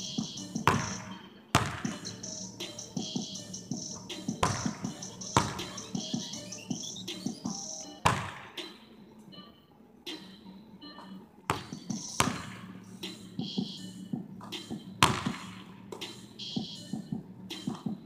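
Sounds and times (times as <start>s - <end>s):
basketball bouncing on hardwood floor: 0.6s - 2.0s, 4.3s - 5.8s, 7.4s - 8.5s, 11.5s - 12.6s, 14.2s - 16.1s.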